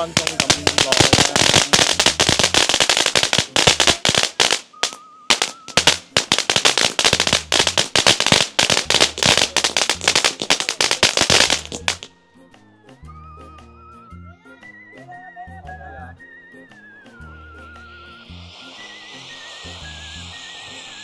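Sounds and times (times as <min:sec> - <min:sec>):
firework cracks and bangs: 0:00.0 - 0:12.1, 0:17.1 - 0:21.0
music with whistle-like melody: 0:00.0 - 0:21.0.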